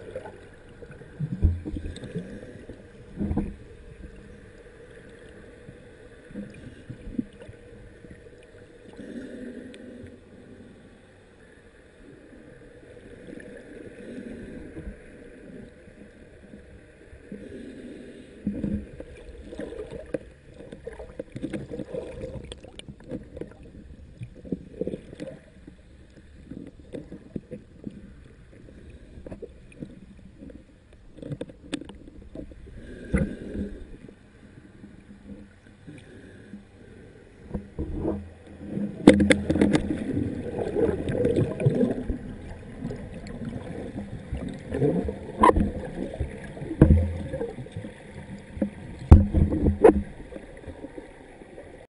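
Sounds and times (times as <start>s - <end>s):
faint steady hum: 0.0s - 51.9s
water sloshing against camera: 18.4s - 51.9s.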